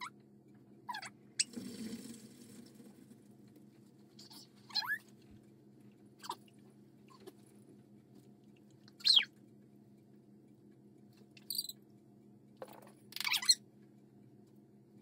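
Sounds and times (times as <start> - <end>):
squeaky toy squeaks: 4.2 - 5.0, 9.0 - 9.3, 13.2 - 13.6.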